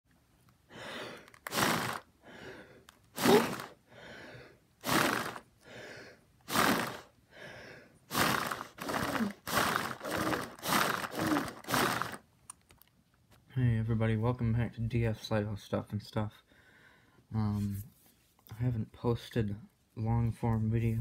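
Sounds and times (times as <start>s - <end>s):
person breathing heavily: 0.7s - 12.2s, 16.4s - 17.3s
quick panting with voice: 0.7s - 12.2s.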